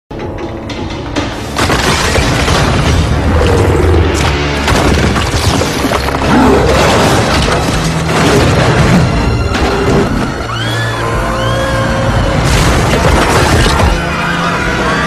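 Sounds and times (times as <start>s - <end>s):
film music: 0.1s - 15.0s
booms and smashing impacts: 1.5s - 10.0s, 12.4s - 14.0s.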